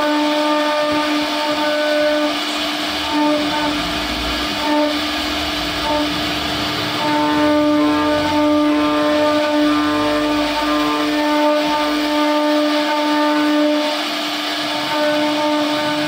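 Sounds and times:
router spindle whine: 0.0 - 16.0
pulsing tone: 2.4 - 12.0.

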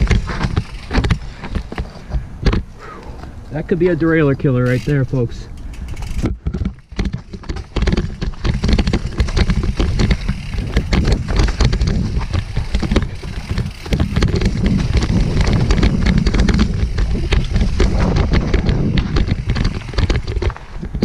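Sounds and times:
mountain bike clattering over rocks: 0.0 - 2.7, 3.9 - 21.0
low rumble: 6.8 - 20.3.

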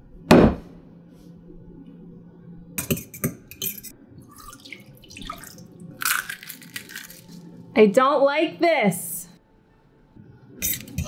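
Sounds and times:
faint steady hum: 0.0 - 11.0
water pouring into saucepan: 4.2 - 7.2.

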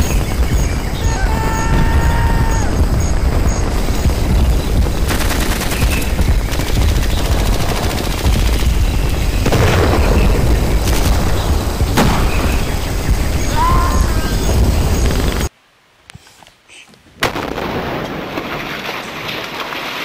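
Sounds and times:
heavy low rumble: 0.0 - 15.4
sharp explosion booms: 0.0 - 15.4, 17.2 - 18.6
dense continuous gunfire: 0.0 - 15.5, 17.2 - 19.8.

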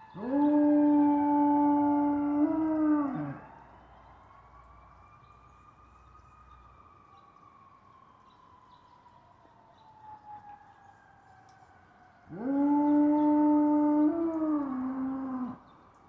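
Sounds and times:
dog howling: 0.0 - 3.4, 12.3 - 15.6
faint siren falling in pitch: 0.0 - 15.6.

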